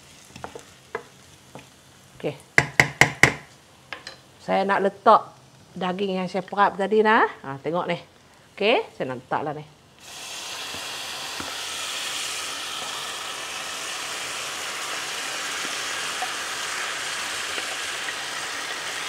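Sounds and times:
meat sizzling in hot oil: 0.0s - 3.4s, 10.0s - 19.0s.

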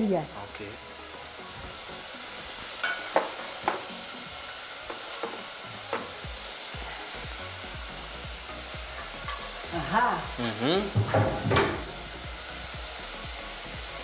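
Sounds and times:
food sizzling in a pan: 0.0s - 14.0s
utensil knocking on pan: 2.8s - 4.0s, 4.9s - 6.2s, 10.9s - 12.0s.

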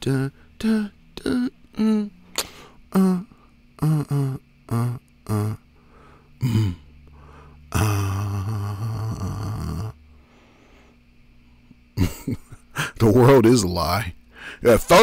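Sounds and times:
long breathy vocal sound: 0.0s - 11.0s
man grunting: 6.4s - 6.8s, 7.7s - 10.0s.

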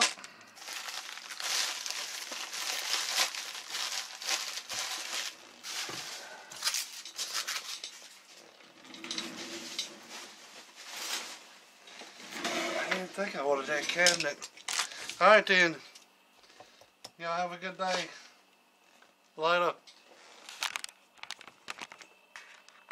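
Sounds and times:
plastic packing crinkling: 0.0s - 8.3s, 20.4s - 22.1s.

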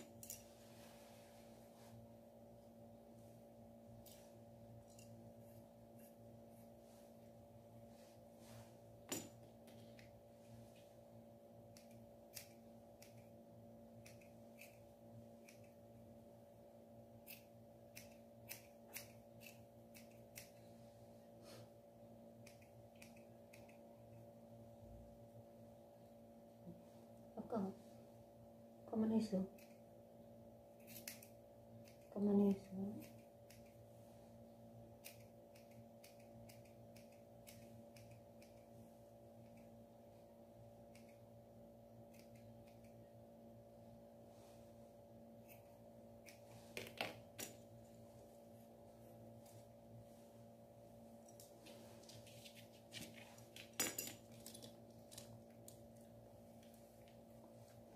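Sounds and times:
scissors snipping fur: 0.0s - 0.5s, 4.0s - 6.2s, 11.7s - 16.0s, 17.2s - 20.8s, 22.3s - 24.3s, 29.4s - 29.8s, 30.7s - 33.8s, 34.9s - 38.8s, 39.4s - 39.8s, 40.8s - 41.3s, 42.0s - 43.1s, 45.4s - 46.5s
steady low hum: 0.0s - 57.9s.

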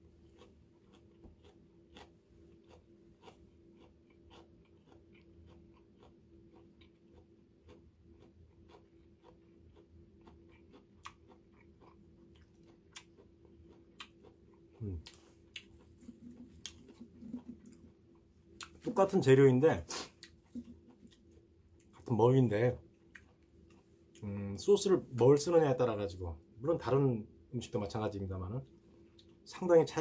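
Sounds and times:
person chewing crunchy leaves: 0.0s - 19.2s, 19.9s - 22.1s
faint steady hum: 0.0s - 30.0s.

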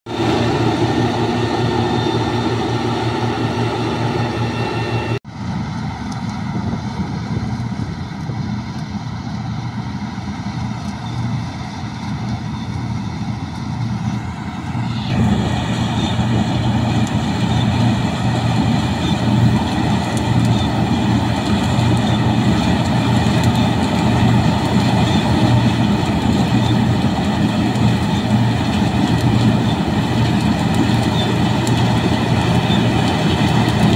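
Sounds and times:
combine harvester engine drone: 0.1s - 33.9s.

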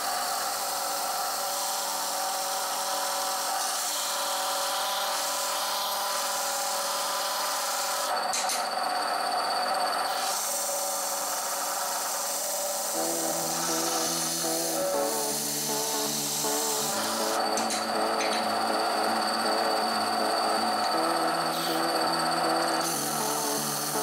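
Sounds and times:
disc sander sanding wood: 12.3s - 24.0s.

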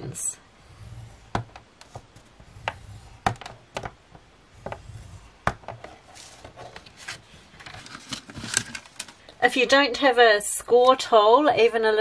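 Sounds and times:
plastic tool scraping board grooves: 0.6s - 8.7s.

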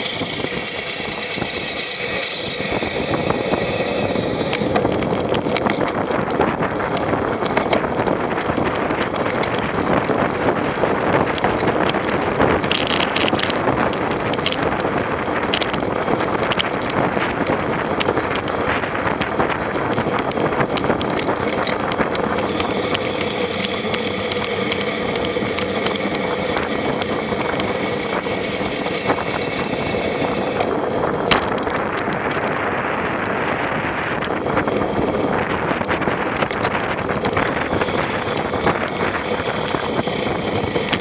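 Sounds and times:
vehicle engine tone: 0.0s - 7.8s, 19.1s - 41.0s
wind noise on microphone: 0.0s - 41.0s.

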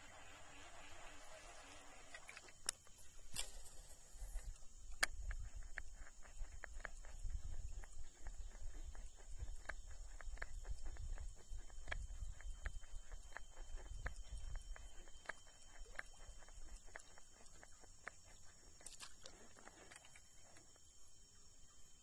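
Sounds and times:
fishing line hiss: 0.0s - 5.0s.

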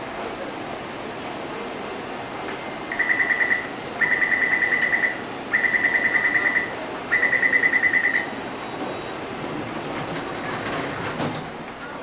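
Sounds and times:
rapid high warning beeps: 2.9s - 10.1s.

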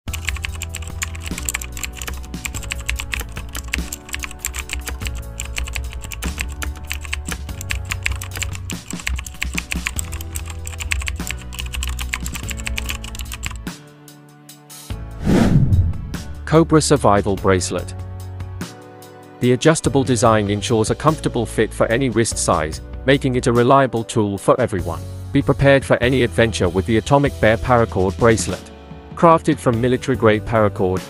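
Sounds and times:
keyboard typing clicks: 0.1s - 13.6s
background music low chords: 0.1s - 31.0s.

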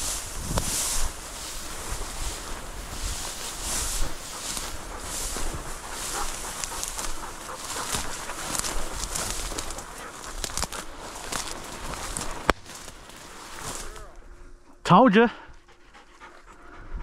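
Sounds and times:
dry grass swishing against legs: 0.0s - 14.2s.

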